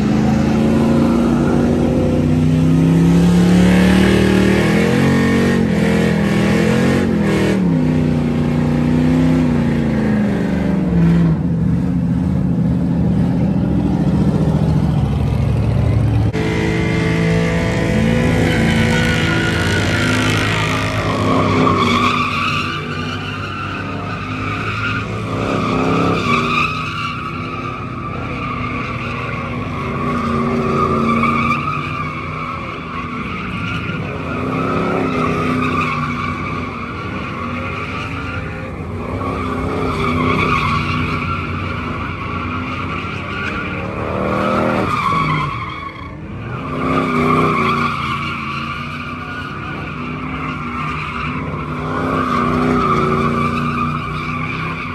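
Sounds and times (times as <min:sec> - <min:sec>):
engine at high revs: 0:00.0 - 0:12.1, 0:13.6 - 0:23.0, 0:23.7 - 0:26.5
tyres squealing: 0:16.5 - 0:54.9.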